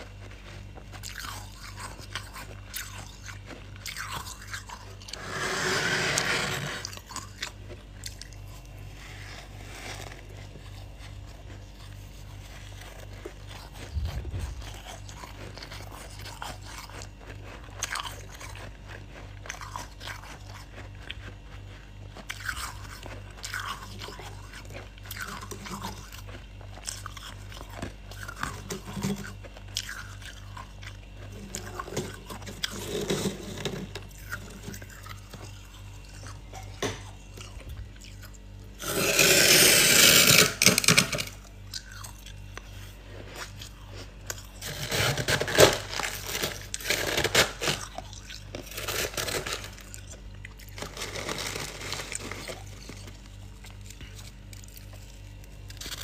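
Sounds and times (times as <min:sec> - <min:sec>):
scoop scraping freezer frost: 0:04.9 - 0:07.3, 0:08.6 - 0:16.1, 0:31.4 - 0:35.4, 0:38.8 - 0:41.4, 0:42.6 - 0:48.0, 0:50.7 - 0:56.0.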